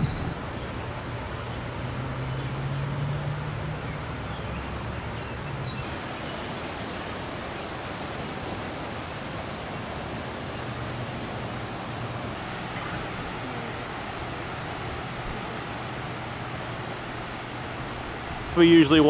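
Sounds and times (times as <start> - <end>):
low hum: 0.0 - 0.4
floodwater rushing: 5.9 - 19.0.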